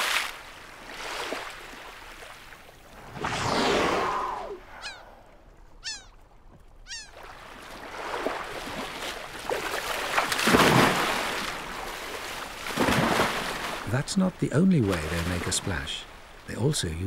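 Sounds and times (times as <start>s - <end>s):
water washing: 2.8s - 17.0s
short falling calls: 3.2s - 6.2s, 6.8s - 7.2s
whale slapping water surface: 6.4s - 13.9s.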